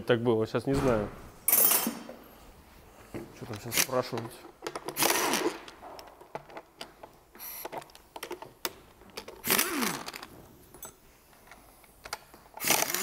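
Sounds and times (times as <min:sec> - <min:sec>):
pneumatic impact wrench: 0:05.0 - 0:05.6, 0:09.4 - 0:10.2, 0:12.6 - 0:13.0.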